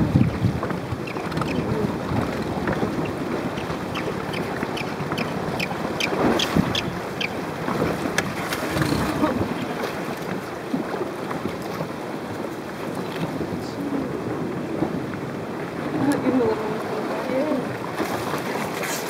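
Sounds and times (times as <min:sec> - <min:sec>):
sea water lapping: 0:00.0 - 0:19.0
wind buffeting microphone: 0:00.0 - 0:19.0.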